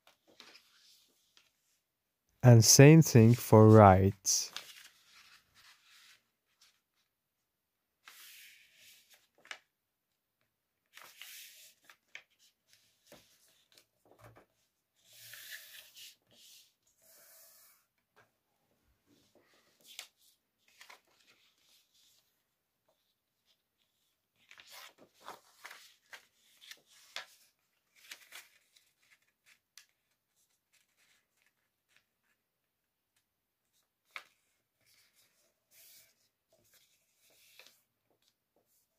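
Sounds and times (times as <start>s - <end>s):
paper being folded: 4.5s - 7.0s, 20.7s - 22.3s, 22.9s - 32.4s, 33.7s - 38.3s.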